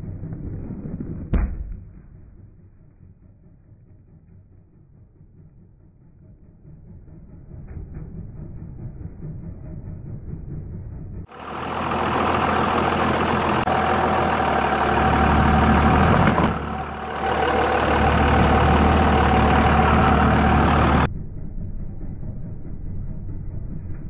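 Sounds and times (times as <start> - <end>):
diesel engine running: 1.8 - 24.0.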